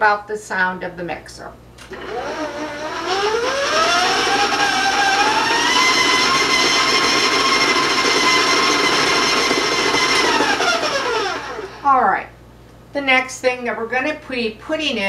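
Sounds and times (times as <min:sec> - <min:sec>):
stand mixer motor whine: 0:01.8 - 0:11.8.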